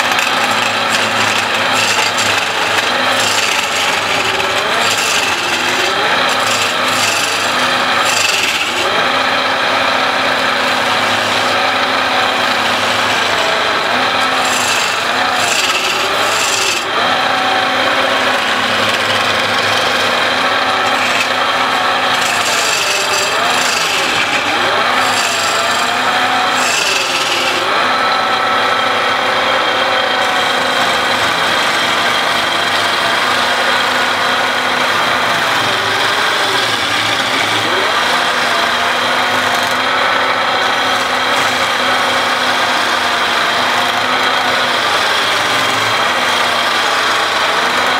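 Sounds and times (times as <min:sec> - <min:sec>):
chisel scraping wood: 0:00.0 - 0:28.0
wood lathe humming: 0:00.0 - 0:47.9.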